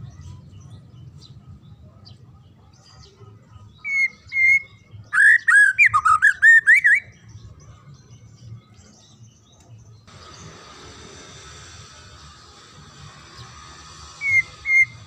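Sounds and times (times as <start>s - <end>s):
bird singing whistled notes: 3.7s - 10.5s, 13.7s - 15.0s.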